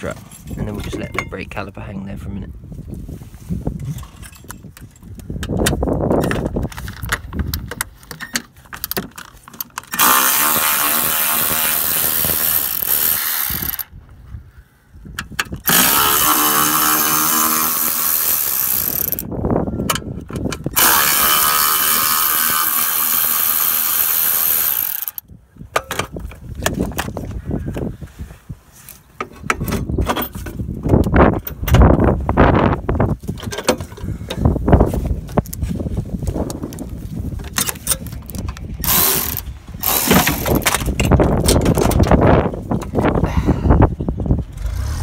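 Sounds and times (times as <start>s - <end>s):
tools clicking and clinking: 0.1s - 1.4s, 3.8s - 13.9s, 15.2s - 27.1s, 33.4s - 34.4s, 37.4s - 42.2s
power tool running: 10.0s - 13.9s, 15.7s - 19.2s, 20.8s - 25.2s, 38.8s - 40.8s.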